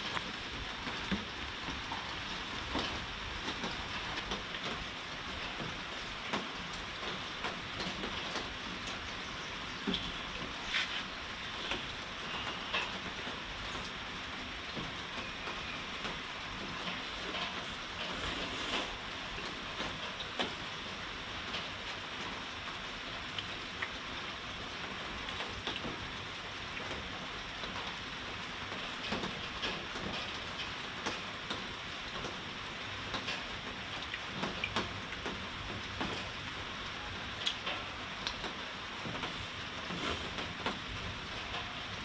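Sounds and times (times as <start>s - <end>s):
heavy rain: 0.0s - 42.0s.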